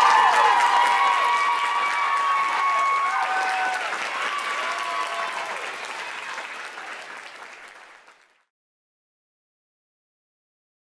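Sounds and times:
whoops and cheers: 0:00.0 - 0:07.0
audience applauding: 0:00.0 - 0:08.5.

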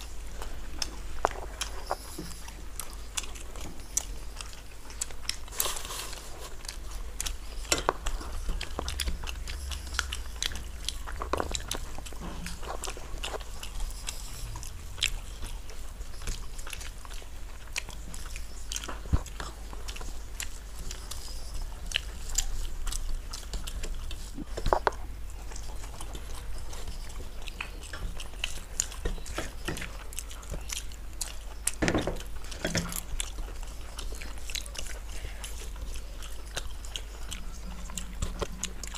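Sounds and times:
fingers mixing rice on plates: 0:00.0 - 0:38.9
people chewing and biting: 0:00.0 - 0:38.9.

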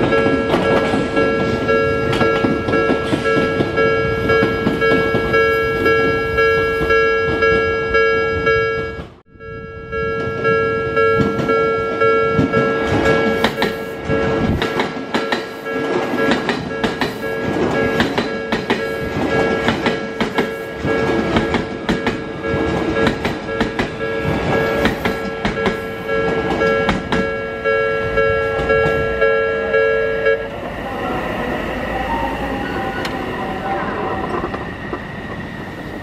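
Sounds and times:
level-crossing warning bell: 0:00.0 - 0:35.0
train wheels clattering over joints: 0:12.4 - 0:27.4.

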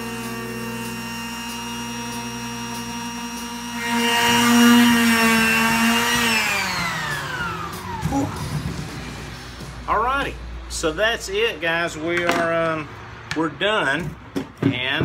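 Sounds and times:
power tool motor whine on wood: 0:00.0 - 0:09.3.

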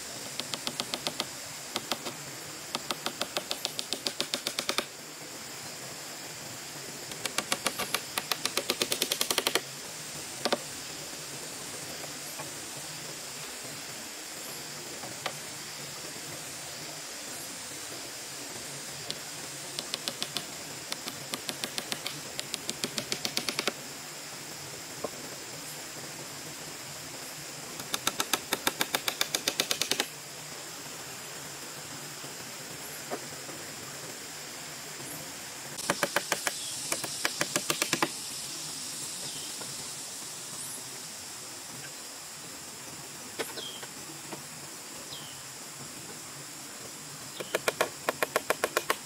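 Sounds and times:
steady high hiss: 0:00.0 - 0:49.0
rapid sharp clicks: 0:00.3 - 0:04.9, 0:07.1 - 0:09.6, 0:19.8 - 0:23.8, 0:27.8 - 0:30.1, 0:35.8 - 0:38.2, 0:47.4 - 0:49.0.

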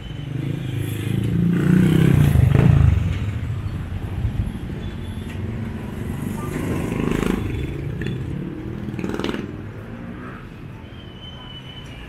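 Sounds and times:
motorcycle passing: 0:00.3 - 0:04.2, 0:05.5 - 0:10.5.

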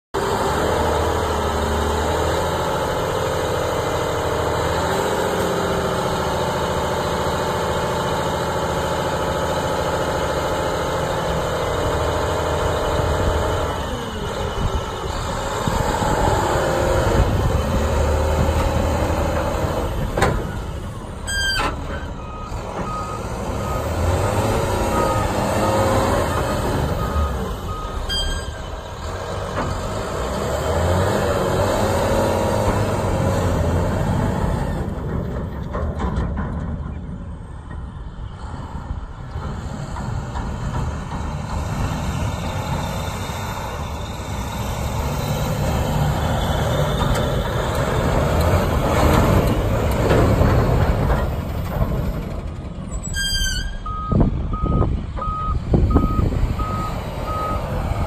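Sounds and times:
diesel engine under load: 0:00.1 - 0:58.0
reversing alarm beeps: 0:21.2 - 0:28.8, 0:53.2 - 0:57.7.

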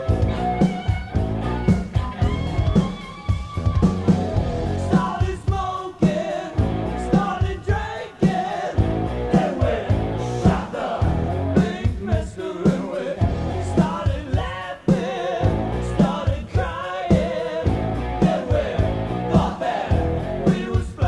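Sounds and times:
rock band playing: 0:00.0 - 0:21.0
steady drum beat: 0:00.0 - 0:21.0
person singing: 0:11.6 - 0:21.0.

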